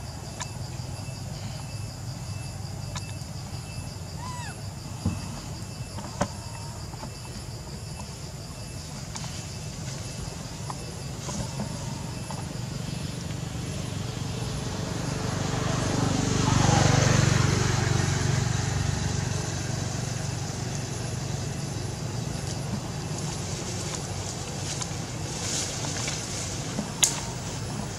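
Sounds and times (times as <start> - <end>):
motor vehicle passing: 11.2 - 27.9.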